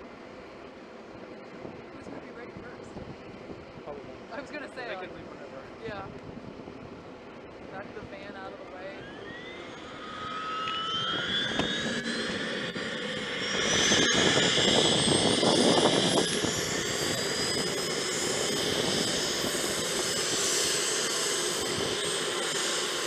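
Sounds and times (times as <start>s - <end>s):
jet engine whine: 0.0s - 23.0s.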